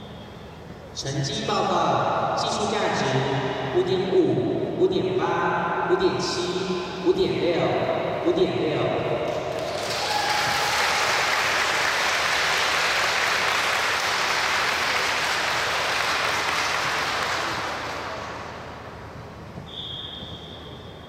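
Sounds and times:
crowd applauding: 9.5s - 18.7s.

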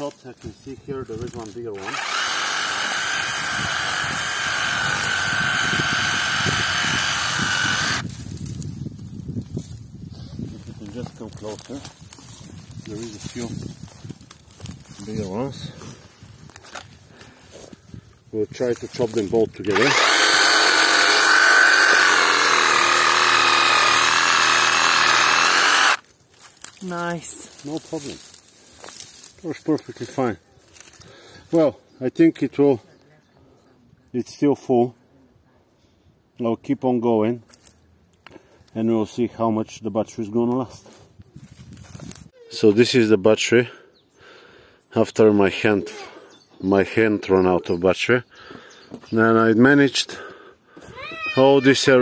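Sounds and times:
reciprocating saw whining: 1.8s - 8.1s, 19.7s - 26.0s.

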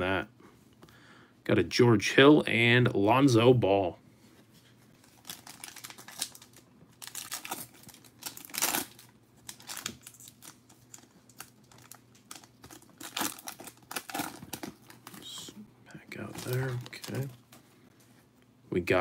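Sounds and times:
foil wrapper crinkling and tearing: 5.0s - 15.5s, 16.2s - 17.6s.

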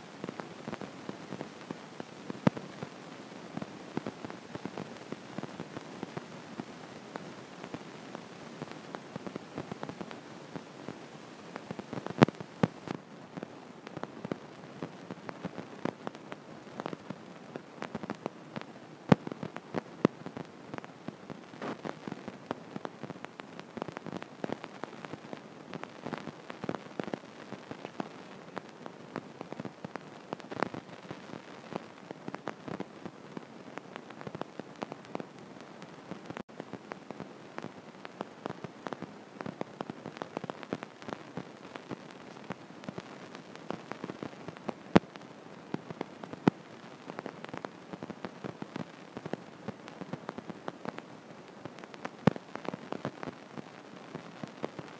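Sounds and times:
faint steady hiss: 0.0s - 54.9s
crackling clicks: 11.6s - 36.4s, 51.7s - 54.9s.

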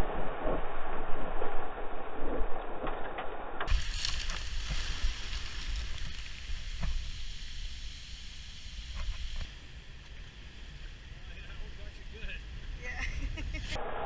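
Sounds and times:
wind rumbling on microphone: 0.0s - 14.0s
surf hissing: 3.7s - 14.0s.

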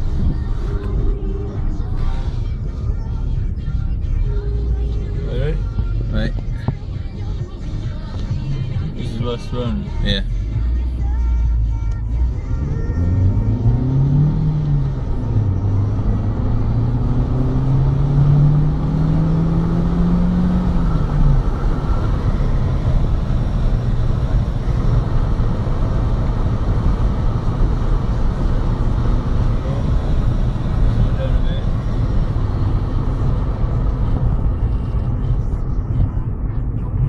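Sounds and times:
road rumble inside car: 0.0s - 37.0s
engine tone climbing: 11.8s - 37.0s.

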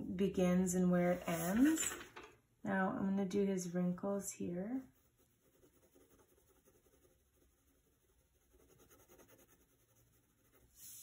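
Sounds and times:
pencil scratching on paper: 4.8s - 11.0s.

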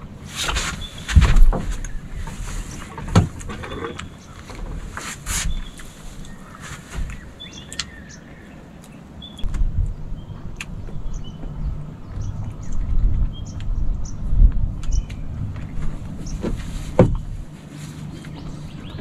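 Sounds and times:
knocks and thumps: 0.4s - 5.6s, 15.6s - 17.5s
low rumble: 9.1s - 19.0s.

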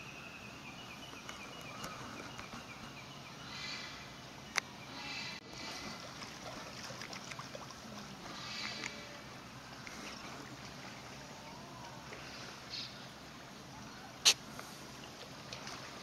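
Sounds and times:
water splashing and sloshing: 4.5s - 16.0s.

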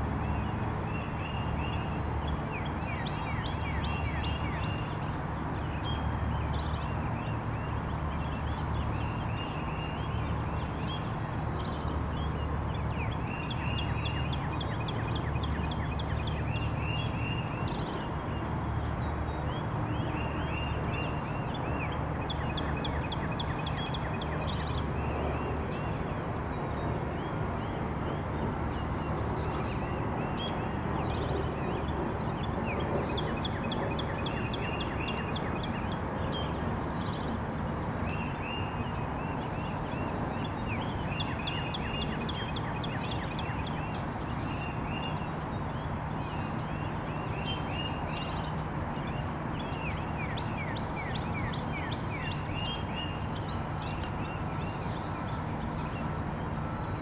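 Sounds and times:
distant city traffic rumble: 0.0s - 57.0s
songbirds chirping: 0.0s - 57.0s.

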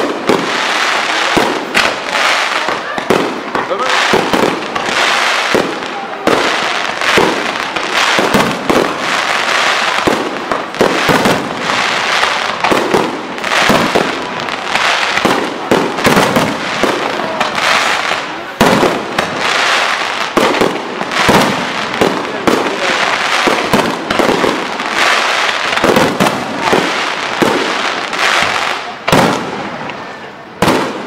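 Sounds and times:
fireworks bangs: 0.0s - 31.0s
fireworks crackling hiss: 0.0s - 31.0s.

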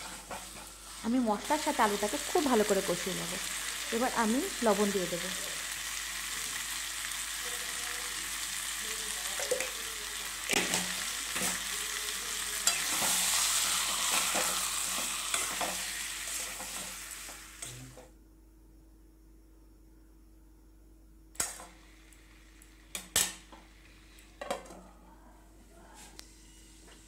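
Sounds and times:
potatoes sizzling in oil: 0.0s - 18.0s.

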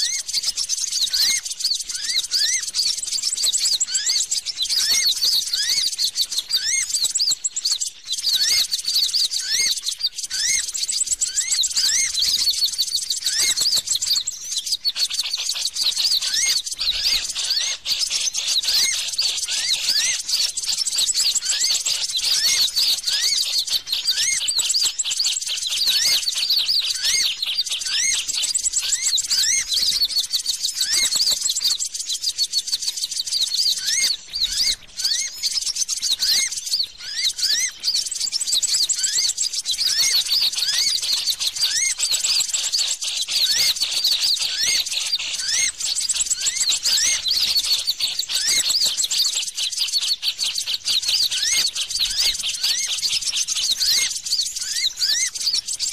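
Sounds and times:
rapid rising bird chirps: 0.0s - 55.9s.

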